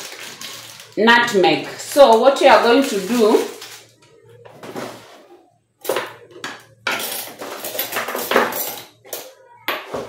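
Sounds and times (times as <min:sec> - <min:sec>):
paper packet crinkling: 0:00.0 - 0:01.7, 0:02.8 - 0:04.0.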